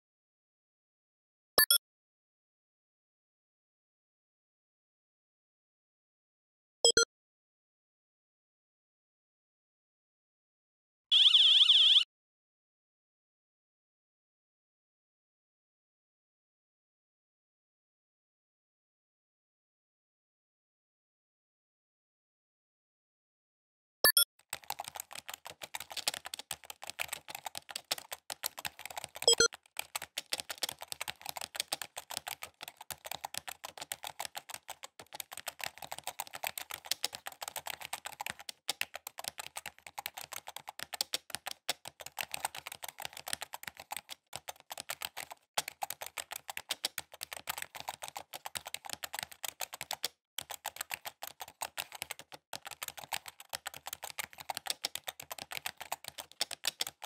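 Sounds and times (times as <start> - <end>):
keyboard typing clicks: 1.6 - 1.8, 24.1 - 57.0.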